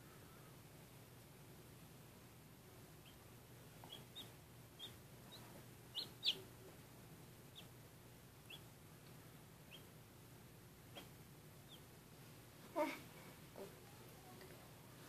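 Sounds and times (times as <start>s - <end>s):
faint low hum: 0.0s - 15.0s
chick peeping: 3.0s - 6.5s, 7.5s - 7.8s, 8.4s - 8.7s, 9.7s - 9.9s, 10.9s - 11.9s.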